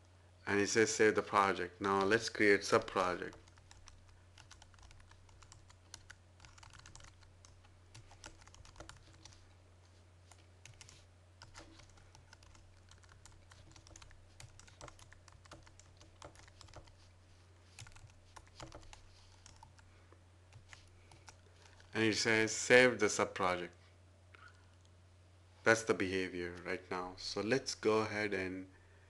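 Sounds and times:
steady low hum: 0:00.0 - 0:29.0
computer keyboard typing: 0:02.8 - 0:09.4, 0:10.3 - 0:17.1, 0:17.8 - 0:19.8, 0:20.5 - 0:21.9.

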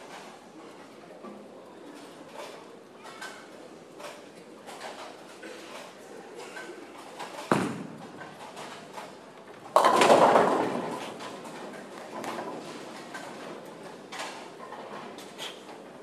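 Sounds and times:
bowling pins clattering: 0:07.1 - 0:15.2
bowling ball thud on lane: 0:07.5 - 0:08.2
bowling ball rolling: 0:07.5 - 0:13.5.

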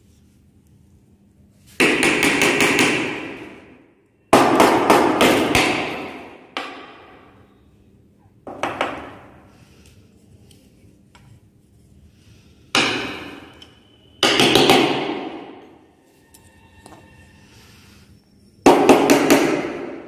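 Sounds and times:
rapid hammering: 0:01.8 - 0:03.6, 0:04.3 - 0:07.0, 0:12.7 - 0:13.5, 0:14.2 - 0:15.6, 0:18.7 - 0:20.0.

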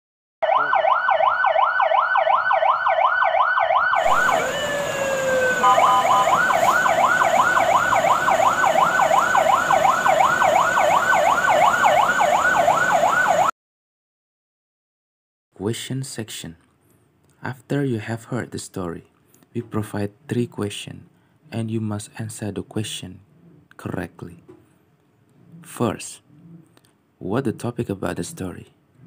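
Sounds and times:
fire engine siren yelping: 0:00.4 - 0:13.6
brief falling tone: 0:04.0 - 0:06.9
vehicle noise rushing: 0:04.0 - 0:13.5.

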